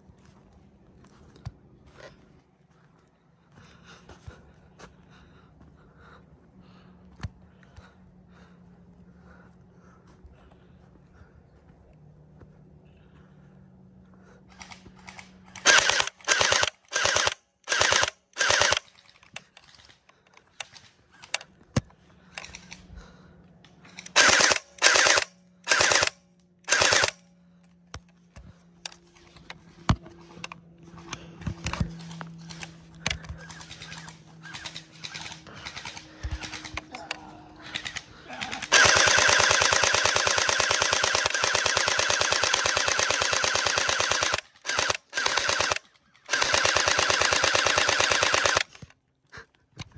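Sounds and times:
gel blaster firing bursts: 15.6s - 18.9s, 24.1s - 27.2s, 37.6s - 48.8s.

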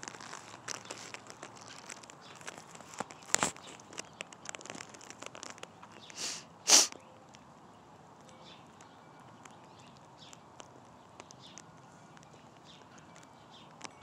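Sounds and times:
breathy sniffs: 6.2s - 6.9s.

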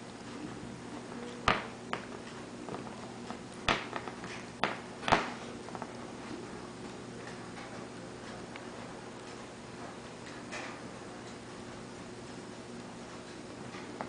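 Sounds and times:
clicks and taps on hard floor: 1.4s - 6.0s.

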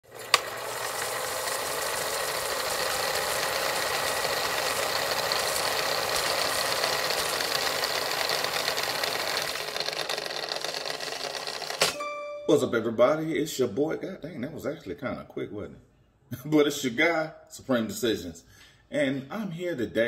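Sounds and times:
film projector whirring and rattling: 0.0s - 12.0s.

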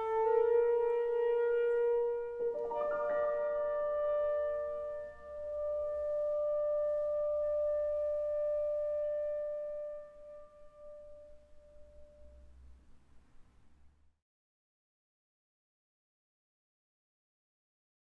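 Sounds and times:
clarinet and piano chord: 0.0s - 12.4s
faint room noise: 0.0s - 14.2s.

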